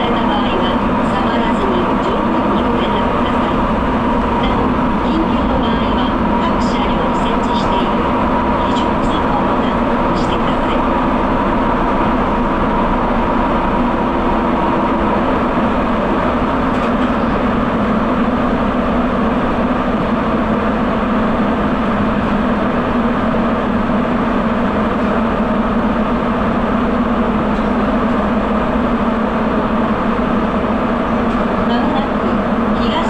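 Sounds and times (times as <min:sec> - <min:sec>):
subway train rumbling in tunnel: 0:00.0 - 0:33.0.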